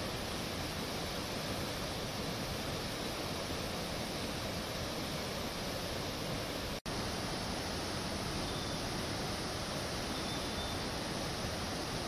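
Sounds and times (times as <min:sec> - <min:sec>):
river rushing over a weir: 0:00.0 - 0:12.0.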